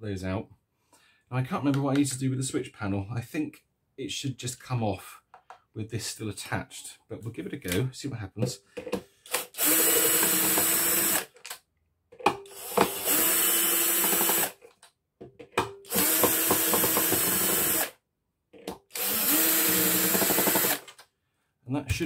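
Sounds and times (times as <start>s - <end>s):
power drill driving screws: 9.3s - 11.4s, 12.5s - 14.6s, 15.9s - 18.0s, 18.9s - 21.0s.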